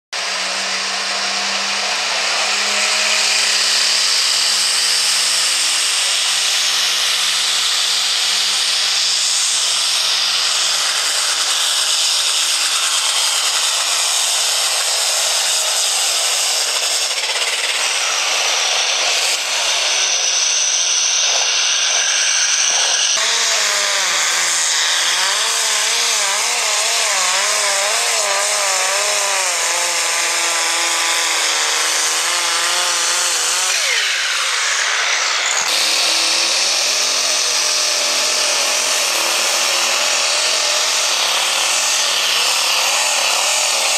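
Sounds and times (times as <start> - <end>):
engine revving up and down: 0.2 - 5.5, 17.8 - 30.0.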